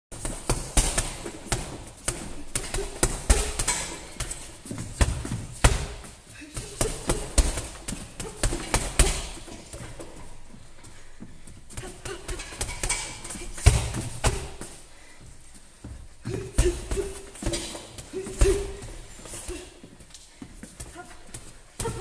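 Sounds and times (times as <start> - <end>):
punches thudding on heavy bag: 0.2 - 6.0, 12.4 - 14.6.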